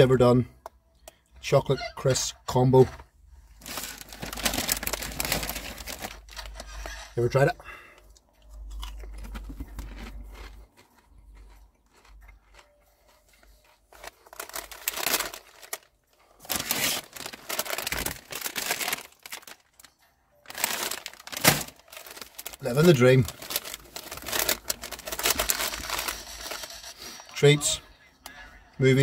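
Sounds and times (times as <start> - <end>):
plastic packet crinkling: 3.6 - 7.0, 13.9 - 26.9
crunching on a crisp: 8.4 - 19.9, 20.5 - 26.8.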